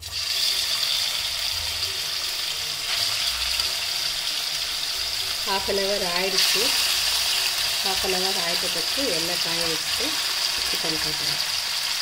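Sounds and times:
chicken sizzling in hot oil: 0:00.0 - 0:12.0.

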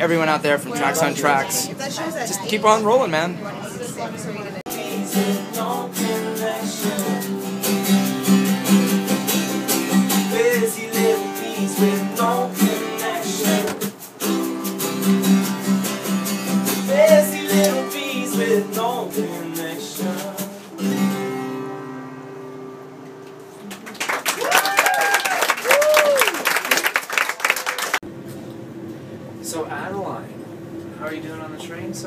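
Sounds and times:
people singing: 0:04.7 - 0:07.9, 0:09.9 - 0:14.0, 0:16.8 - 0:20.8
strummed acoustic guitar: 0:04.7 - 0:23.7.

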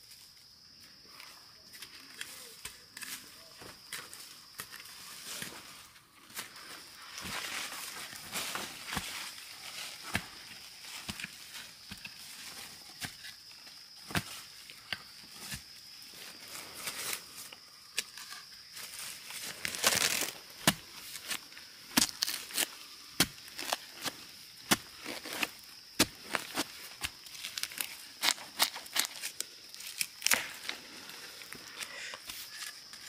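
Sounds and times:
dry leaves crackling: 0:19.0 - 0:22.8, 0:26.2 - 0:30.9.

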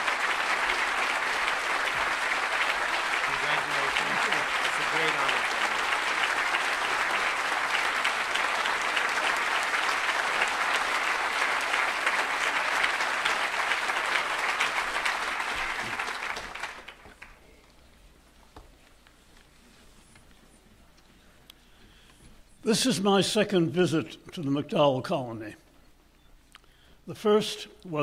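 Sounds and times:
audience applauding: 0:00.0 - 0:17.4.

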